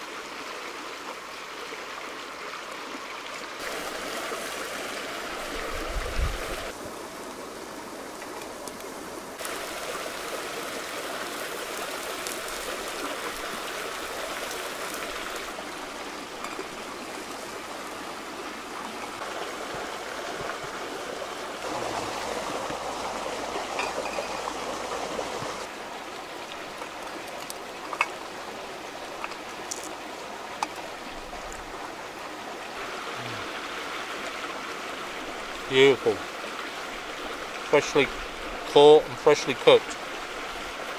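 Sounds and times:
river rushing over rocks: 9.3 - 40.9.

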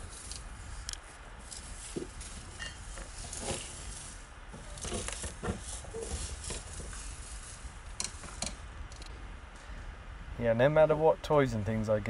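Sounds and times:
animal rustling in dry hay: 0.0 - 8.4.

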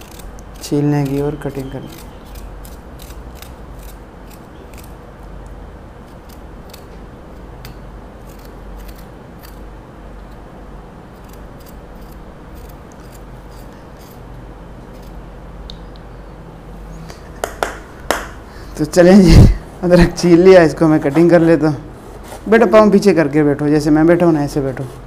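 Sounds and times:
knife scraping ginger skin: 0.0 - 5.0, 6.0 - 10.4, 11.1 - 15.2
steady low hum: 0.0 - 25.0.

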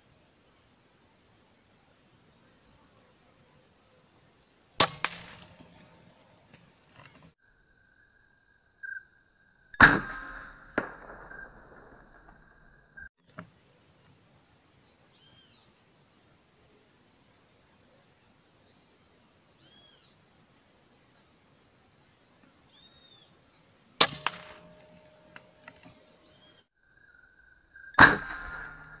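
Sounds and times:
high insect buzz: 0.0 - 9.6, 13.2 - 27.9
rifle shot: 4.8 - 6.3, 9.8 - 11.9, 24.0 - 26.2
short bird calls: 19.6 - 20.2, 22.5 - 23.4.

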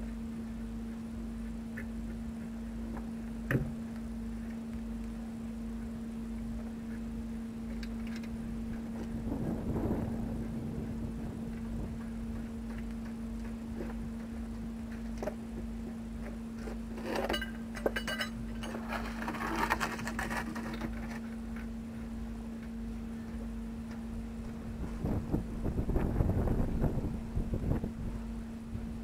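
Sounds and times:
low hum: 0.0 - 29.0
wind rumble on microphone: 7.8 - 16.7, 24.1 - 29.0.

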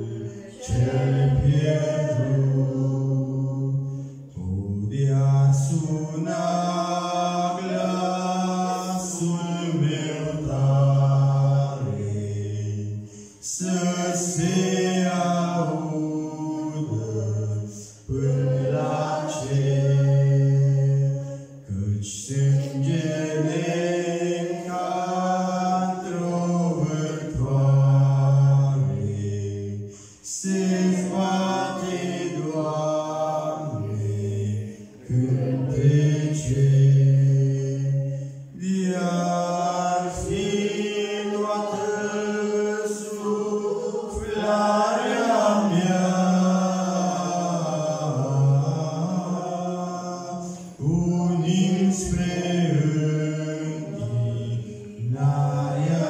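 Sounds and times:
man singing a hymn: 0.0 - 18.3, 19.0 - 56.0.

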